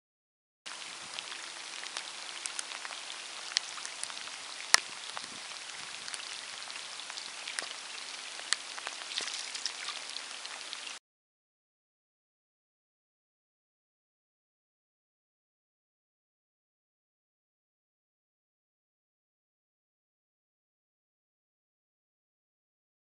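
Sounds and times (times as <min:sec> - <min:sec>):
rain falling on a river: 0:00.7 - 0:11.0
raindrops tapping close by: 0:00.7 - 0:11.0.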